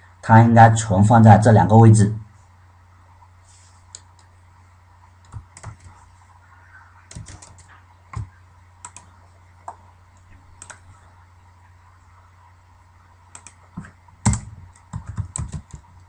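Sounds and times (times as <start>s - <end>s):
low steady hum: 0.0s - 16.0s
keyboard and mouse clicks: 5.2s - 6.0s, 7.1s - 10.8s, 13.3s - 16.0s.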